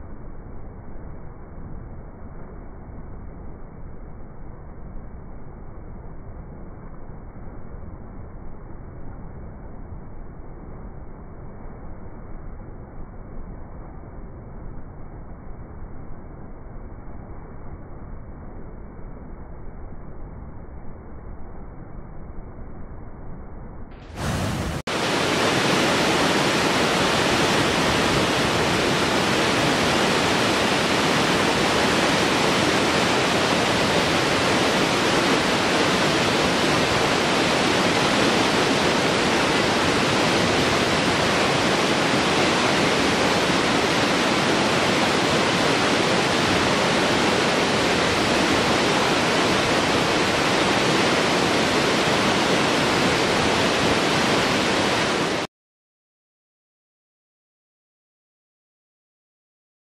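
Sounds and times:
waterfall rushing: 24.1s - 55.5s.

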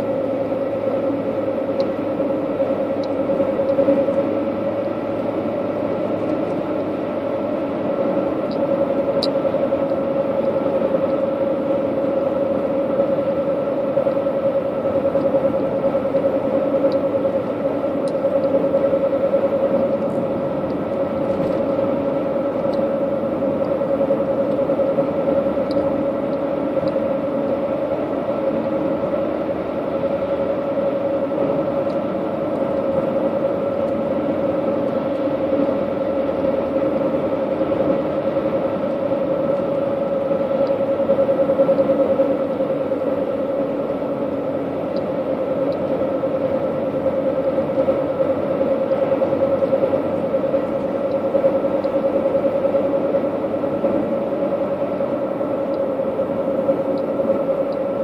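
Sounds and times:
car driving at highway speed: 0.0s - 58.0s
faint ticks: 51.0s - 52.0s, 56.8s - 57.9s.

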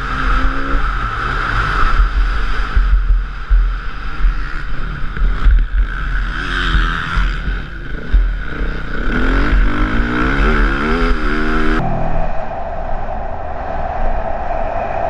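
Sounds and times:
motorcycle engine running hard: 0.0s - 11.8s
wind buffeting microphone: 0.0s - 15.0s.

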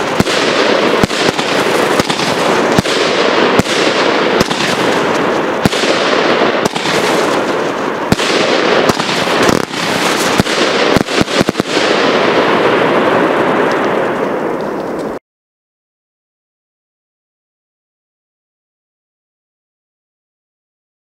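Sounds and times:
firework hiss and crackle: 0.0s - 15.2s
firework shots: 0.0s - 15.2s.

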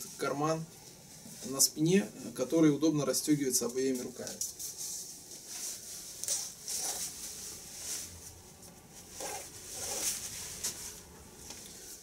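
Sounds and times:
jacket fabric rustling and scratching: 3.6s - 12.0s.

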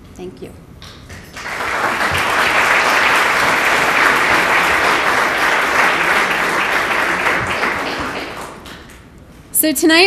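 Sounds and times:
audience applauding: 1.2s - 9.1s.

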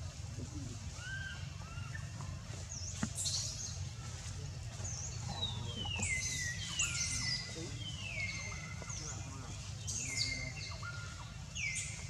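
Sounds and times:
bird chirps: 4.8s - 12.0s.

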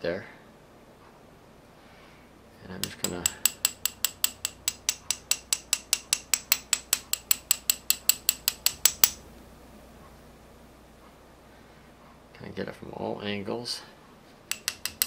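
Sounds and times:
metal tool tapping brake caliper: 2.8s - 9.2s, 14.5s - 15.0s.

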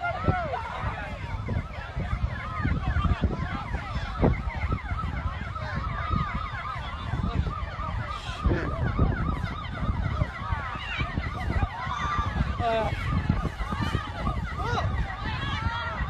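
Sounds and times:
emergency sirens yelping: 0.0s - 16.0s.

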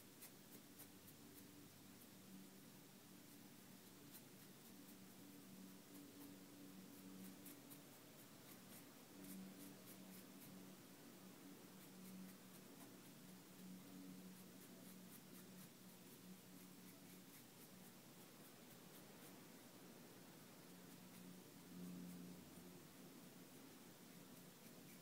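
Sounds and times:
faint low hum: 0.0s - 25.0s
marker scratching on fabric: 14.4s - 19.4s.

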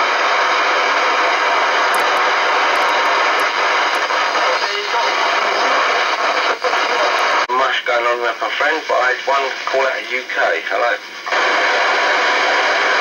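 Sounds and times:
radio static hiss: 0.2s - 13.0s
faint broken radio voice: 2.0s - 11.0s.

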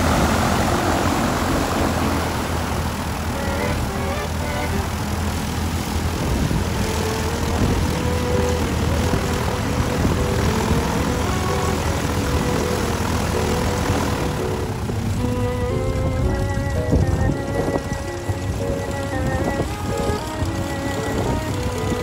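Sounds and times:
aircraft engine rumble: 0.0s - 22.0s
faint music: 6.5s - 22.0s.

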